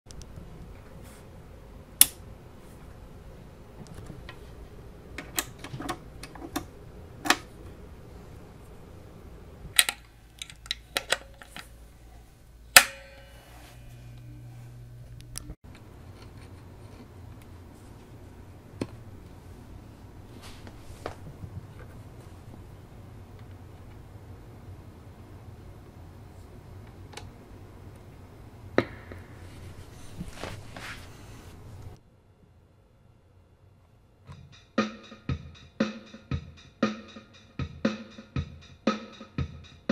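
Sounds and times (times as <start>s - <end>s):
low steady hum: 0.1s - 34.6s
cables and jack plugs clicking: 9.7s - 11.7s.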